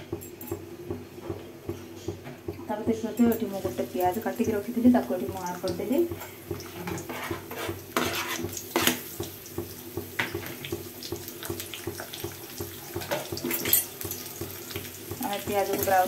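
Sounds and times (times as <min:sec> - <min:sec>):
onion sizzling in oil: 0:03.0 - 0:16.0
stirring scrapes: 0:06.7 - 0:09.0.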